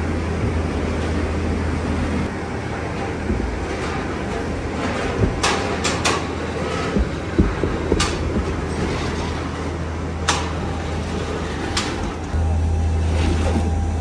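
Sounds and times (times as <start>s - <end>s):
factory machinery humming: 0.0s - 14.0s
sharp clicks and knocks: 3.0s - 9.4s, 10.2s - 10.6s.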